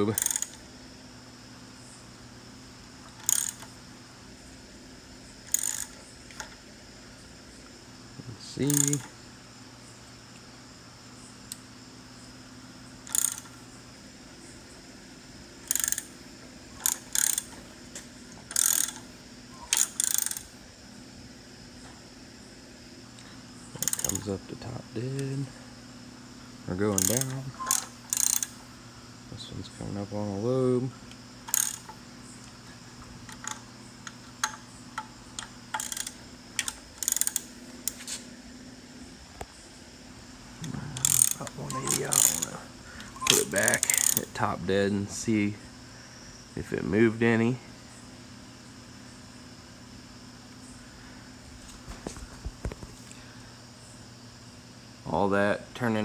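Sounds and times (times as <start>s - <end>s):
steady low hum: 0.0s - 56.0s
hand ratchet clicking: 0.1s - 0.6s, 3.1s - 3.7s, 5.5s - 6.0s, 8.7s - 9.1s, 13.1s - 13.5s, 15.7s - 16.1s, 16.8s - 17.6s, 18.5s - 19.0s, 19.7s - 20.5s, 23.8s - 24.3s, 26.9s - 28.6s, 31.5s - 31.9s, 33.3s - 38.0s, 41.0s - 42.6s, 43.2s - 44.4s.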